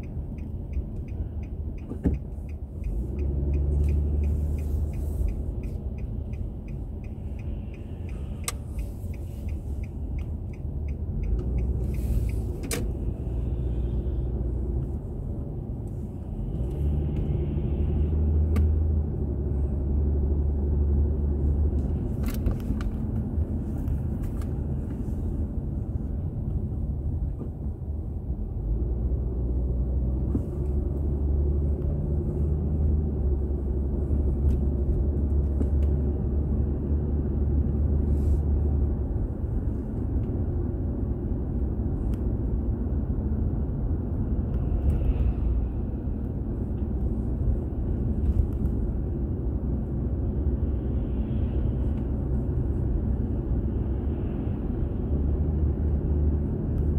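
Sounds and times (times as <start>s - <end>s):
turn signal ticking: 0.0s - 17.4s
car engine and road rumble: 0.0s - 56.9s.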